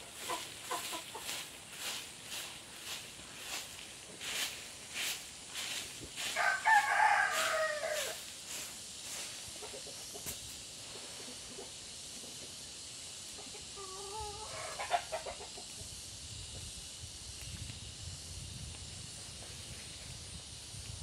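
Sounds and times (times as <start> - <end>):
chicken clucking: 0.0 - 2.4, 9.2 - 10.4, 11.1 - 12.6, 13.2 - 16.0.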